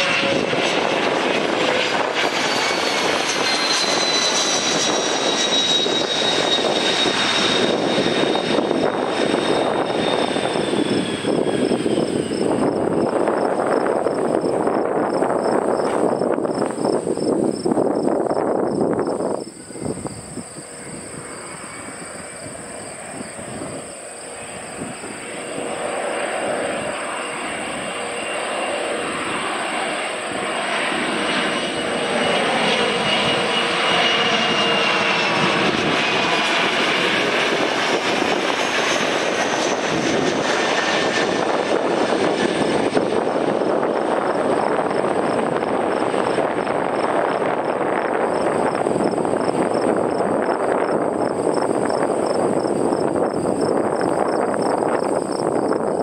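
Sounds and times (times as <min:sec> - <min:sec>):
jet engine whine passing: 0:00.0 - 0:56.0
loud rush of jet noise: 0:00.0 - 0:56.0.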